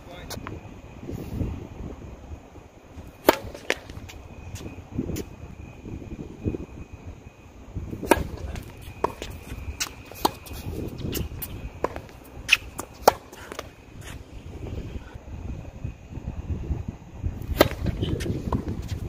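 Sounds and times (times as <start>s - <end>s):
racquets hitting tennis ball: 3.0s - 4.3s, 8.0s - 14.3s, 17.4s - 19.0s
tennis ball bouncing: 3.1s - 4.1s, 8.0s - 14.2s, 17.5s - 19.0s.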